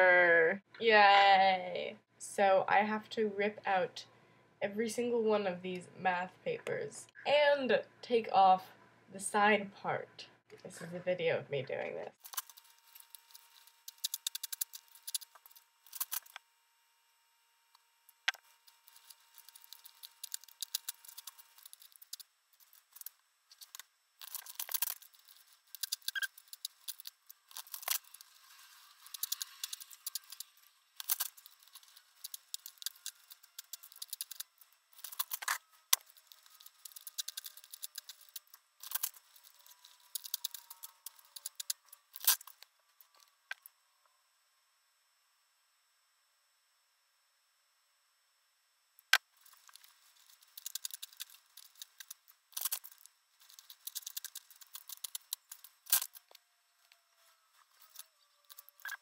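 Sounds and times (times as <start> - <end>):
paper tearing and rustling: 12.2 - 16.4, 18.8 - 42.6.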